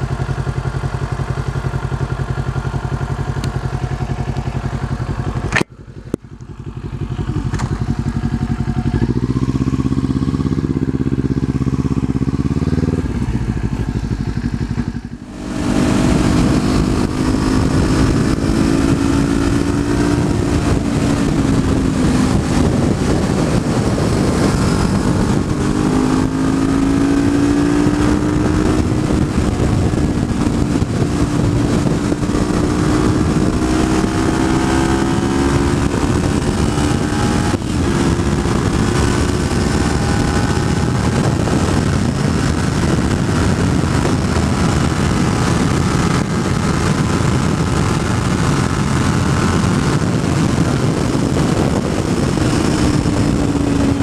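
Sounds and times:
motorcycle engine running: 0.0s - 54.0s
wind on microphone: 2.8s - 54.0s.

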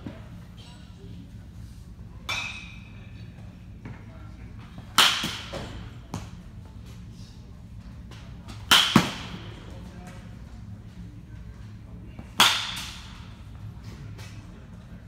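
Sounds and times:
bat hitting baseball: 5.0s - 6.2s, 8.6s - 9.5s, 12.4s - 13.2s.

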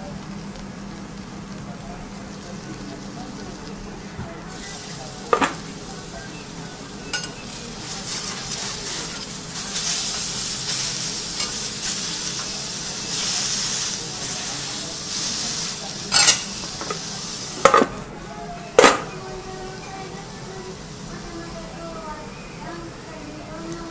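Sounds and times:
food sizzling on a griddle: 0.0s - 23.9s
metal spatula clacking on griddle: 7.1s - 7.4s, 9.8s - 11.7s, 16.1s - 17.0s, 18.8s - 19.2s.

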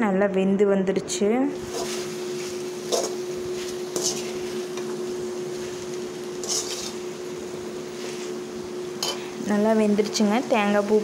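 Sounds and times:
steady hum: 1.0s - 11.0s
ladle scraping metal pan: 3.9s - 4.6s, 6.4s - 7.0s.

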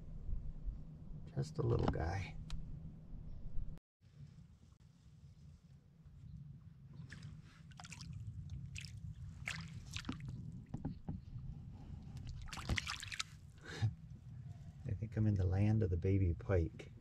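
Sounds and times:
fish thrashing and splashing: 7.7s - 10.5s, 12.2s - 13.4s
light splashes and knocks on water: 8.7s - 11.2s, 12.2s - 13.4s.

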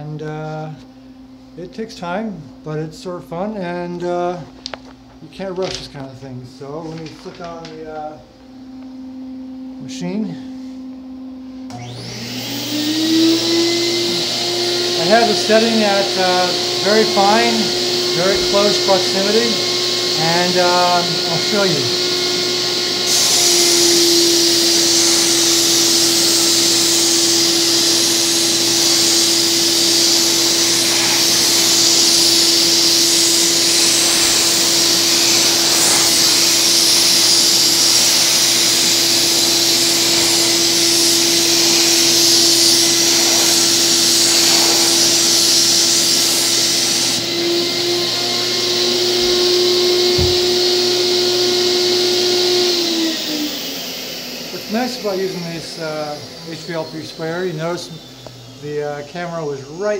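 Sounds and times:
paint sprayer turbine whine: 3.4s - 59.9s
spray gun hissing: 22.7s - 51.1s.

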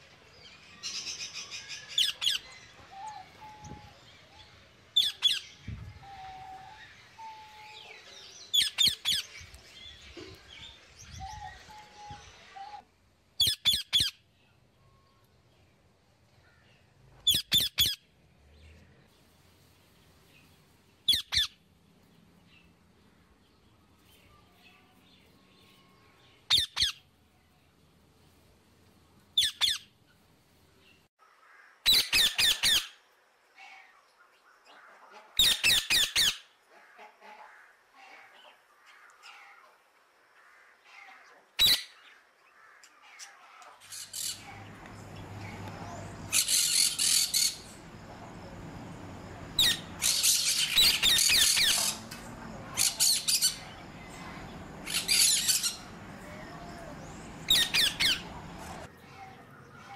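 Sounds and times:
outdoor background noise: 0.0s - 59.9s
parrots squawking: 43.8s - 47.9s, 49.5s - 52.1s, 52.7s - 56.2s, 57.0s - 58.9s.

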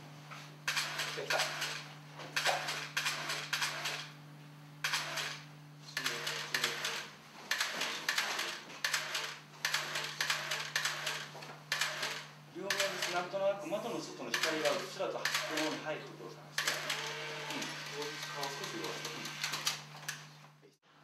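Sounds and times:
steady low hum: 0.0s - 21.0s
mechanical clicking bursts: 0.7s - 1.8s, 2.4s - 4.1s, 4.8s - 5.4s, 6.0s - 13.3s, 14.3s - 15.8s, 16.6s - 20.2s.

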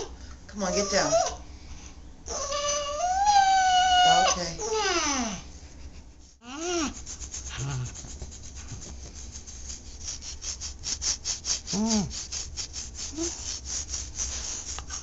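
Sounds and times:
back scratcher scratching fur: 4.0s - 4.5s, 5.8s - 15.0s.

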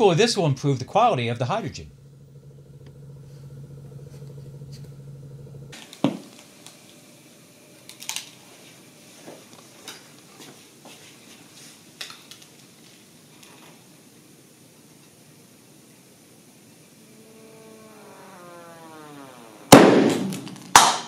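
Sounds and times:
steady low hum: 0.0s - 10.8s, 16.7s - 20.8s.

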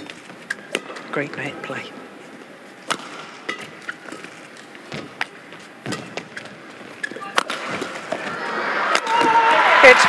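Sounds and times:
racket hitting shuttlecock: 0.5s - 1.1s, 2.8s - 4.3s, 4.9s - 8.3s, 8.9s - 9.4s
footsteps on court: 3.0s - 8.4s.

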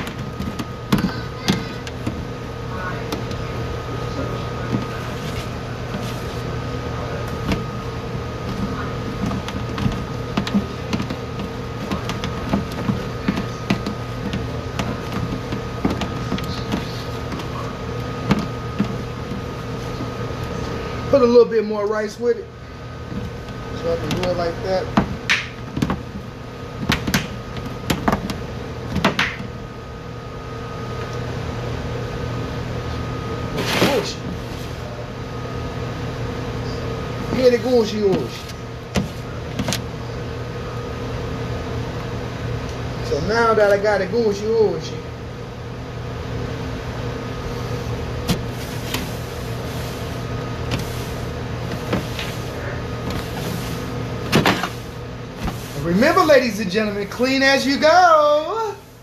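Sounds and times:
hands kneading wet mixture: 0.0s - 29.6s, 47.4s - 59.0s
kitchen equipment hum: 0.0s - 59.0s
paper towel wiping metal counter: 4.1s - 7.7s, 8.5s - 20.7s, 33.5s - 34.9s, 47.5s - 59.0s.

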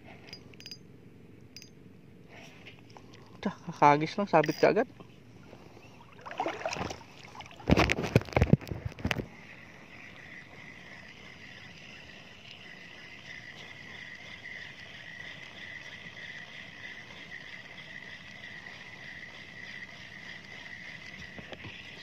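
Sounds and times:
high-pitched insect buzz: 9.0s - 22.0s.

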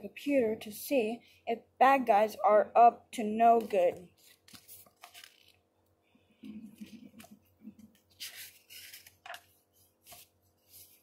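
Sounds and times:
book pages rustling: 3.6s - 5.6s, 6.7s - 11.0s.

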